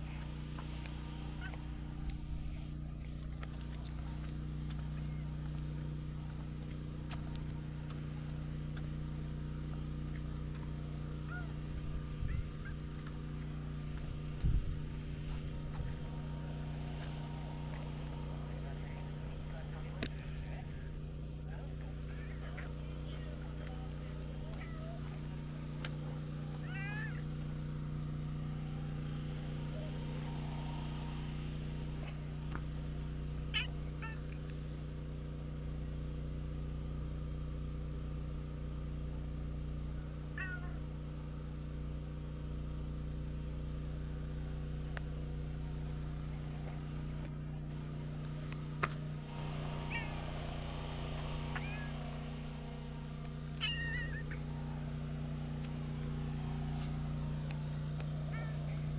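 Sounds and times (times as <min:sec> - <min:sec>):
steady low hum: 0:00.0 - 0:58.9
cat meowing softly: 0:24.5 - 0:25.2, 0:26.6 - 0:27.3, 0:33.5 - 0:34.4, 0:40.3 - 0:40.9, 0:49.5 - 0:52.4, 0:53.6 - 0:54.8, 0:58.2 - 0:58.8.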